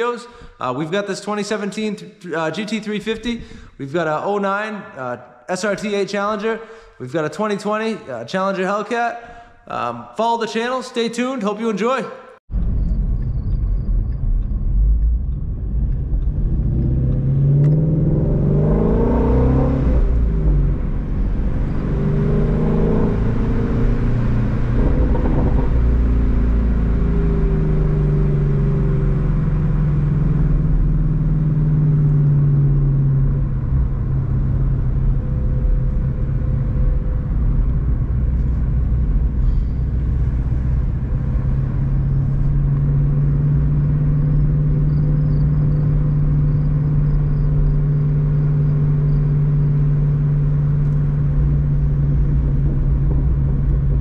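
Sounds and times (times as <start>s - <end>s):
car engine running: 12.5s - 54.0s.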